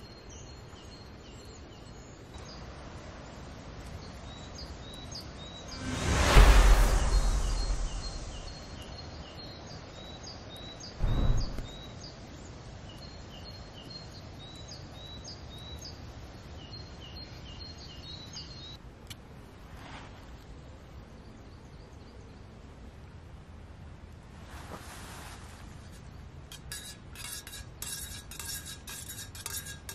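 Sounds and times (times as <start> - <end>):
outdoor background noise: 0.0 - 29.9
loud whoosh: 5.6 - 8.9, 11.0 - 11.9.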